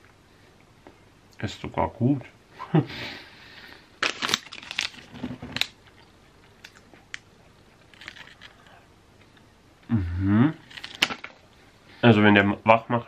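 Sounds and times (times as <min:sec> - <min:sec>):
plastic wrapper crinkling: 0:04.0 - 0:08.7, 0:10.6 - 0:11.4.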